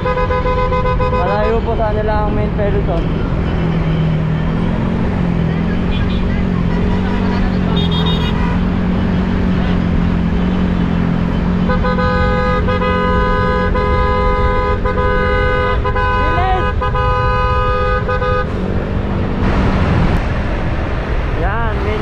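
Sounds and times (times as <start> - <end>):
vehicle horn blast: 0.0 - 1.7, 5.9 - 8.7, 11.6 - 18.6
engine and road noise: 0.0 - 22.0.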